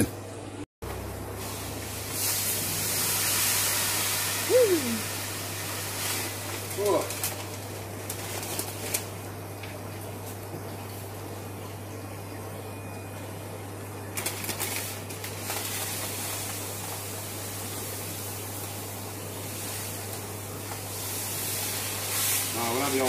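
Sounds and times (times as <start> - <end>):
sand pouring into glass tank: 1.4 - 8.9, 14.2 - 23.0.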